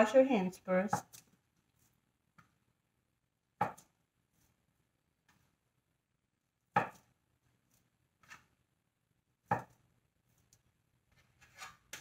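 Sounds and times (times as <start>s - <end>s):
knife striking cutting board: 3.6s - 3.9s, 6.7s - 7.1s, 9.5s - 9.8s.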